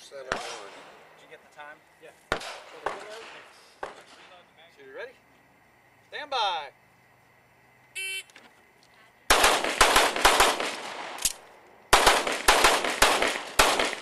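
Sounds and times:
pistol shots: 0:00.2 - 0:01.1, 0:02.3 - 0:04.2, 0:09.3 - 0:14.0.

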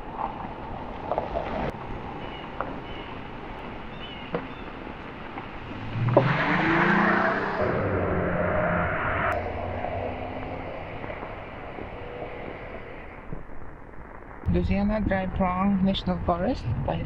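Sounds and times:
car engine accelerating: 0:05.5 - 0:13.4.

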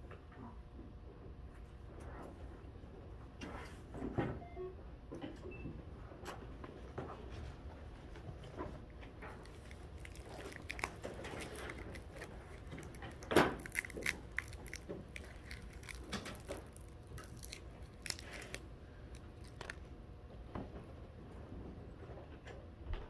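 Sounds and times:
objects being handled: 0:09.0 - 0:19.8.

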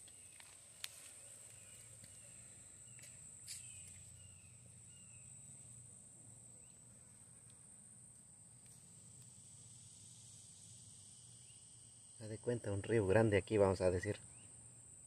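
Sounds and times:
bird chirps: 0:00.0 - 0:05.4
insect drone: 0:00.0 - 0:15.0.

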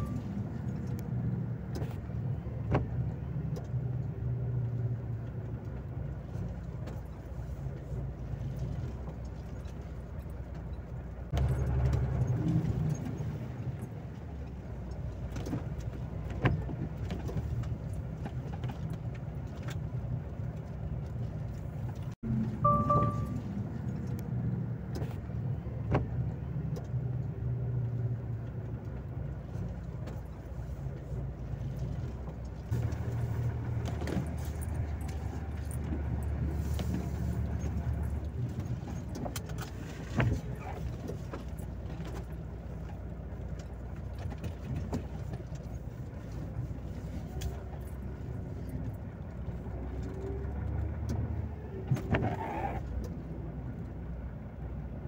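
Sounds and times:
light clicks and rattles: 0:25.9 - 0:51.3
truck diesel engine running: 0:32.7 - 0:39.1.

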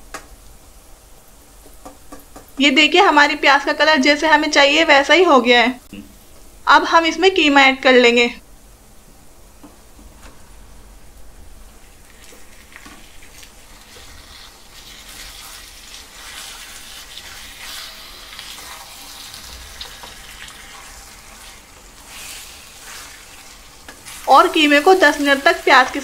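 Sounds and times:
meat sizzling in hot oil: 0:11.8 - 0:26.0
wooden spatula scraping a pan: 0:12.2 - 0:26.0.

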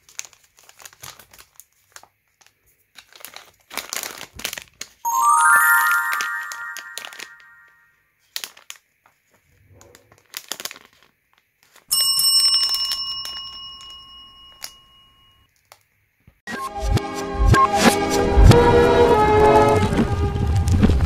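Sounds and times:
plastic wrapper crinkling: 0:00.0 - 0:05.0, 0:08.2 - 0:09.4, 0:10.1 - 0:11.9
bell-like ding: 0:05.1 - 0:07.7.

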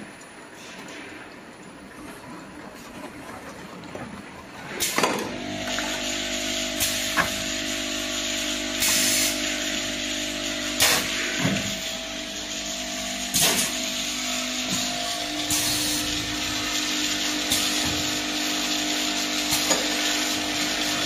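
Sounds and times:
steady machine hum: 0:04.6 - 0:21.0.

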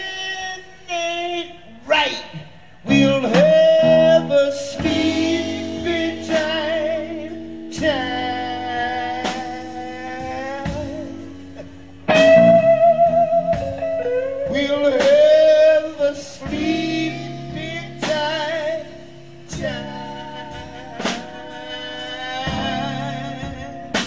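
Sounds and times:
drums: 0:00.0 - 0:24.0
bass guitar: 0:01.7 - 0:24.0
electric guitar solo: 0:11.2 - 0:15.1.

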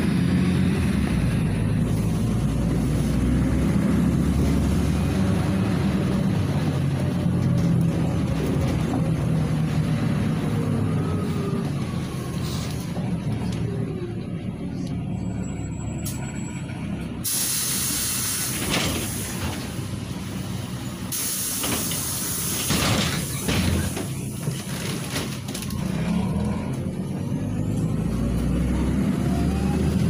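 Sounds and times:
bus engine humming: 0:00.0 - 0:30.0
air brakes hissing: 0:17.2 - 0:19.8, 0:20.8 - 0:24.2.

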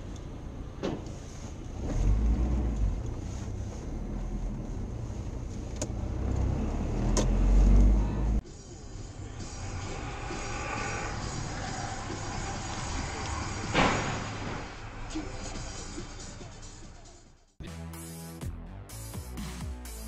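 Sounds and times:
car engine and road noise: 0:00.0 - 0:17.6
low rumble: 0:01.9 - 0:16.9.

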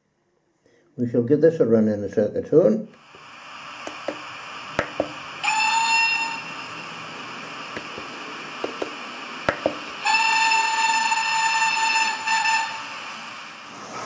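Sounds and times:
steam hiss: 0:03.0 - 0:14.0
steam whistle blasts: 0:05.2 - 0:07.1, 0:09.8 - 0:13.6.

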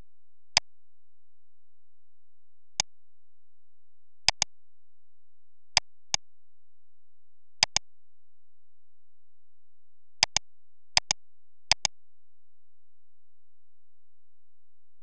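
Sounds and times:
computer mouse clicks: 0:07.6 - 0:07.8, 0:11.0 - 0:11.9.

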